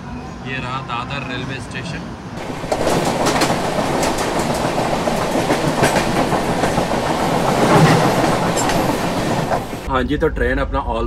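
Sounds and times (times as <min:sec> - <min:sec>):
train passing close alongside: 0:00.0 - 0:09.9
clacks over rail joints: 0:02.4 - 0:09.9
train wheels rushing on rail: 0:02.4 - 0:09.9.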